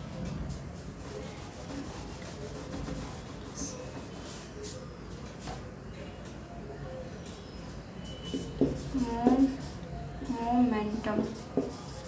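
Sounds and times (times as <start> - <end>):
cloth rubbing on whiteboard: 0.5 - 4.8, 11.0 - 12.0.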